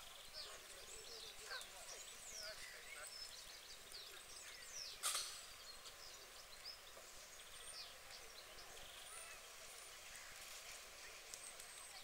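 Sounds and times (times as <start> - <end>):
small birds chirping: 0.0 - 12.0
sharp click: 5.0 - 5.4.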